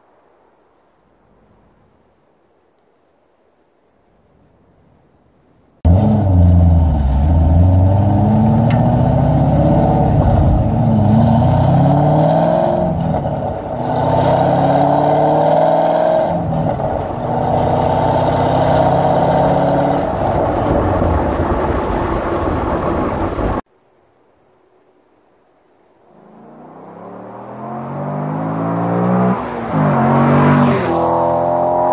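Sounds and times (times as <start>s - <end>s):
car engine revving: 5.9s - 23.6s, 26.1s - 31.9s.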